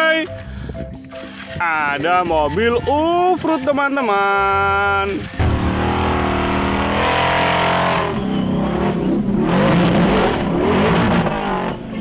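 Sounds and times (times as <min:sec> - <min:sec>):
buggy engine revving hard: 0:05.4 - 0:12.0.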